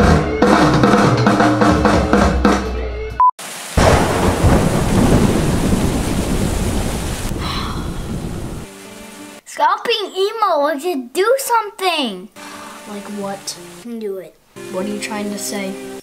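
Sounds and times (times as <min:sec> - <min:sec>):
music with drums and bass: 0:00.0 - 0:03.1
heavy rain pouring: 0:03.4 - 0:09.4, 0:12.4 - 0:13.8
thunder rumbling: 0:03.8 - 0:08.7.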